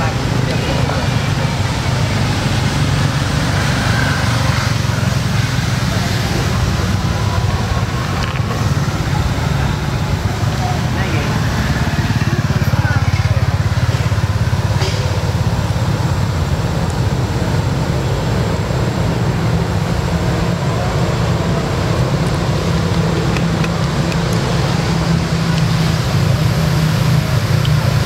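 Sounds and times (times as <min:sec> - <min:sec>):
engine rumbling: 0:00.0 - 0:28.0.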